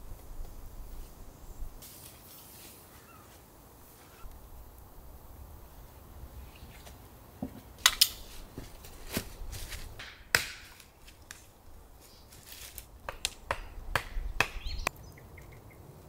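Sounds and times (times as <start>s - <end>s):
sharp snaps and knocks: 7.4s - 9.3s, 10.0s - 11.5s, 12.6s - 15.0s.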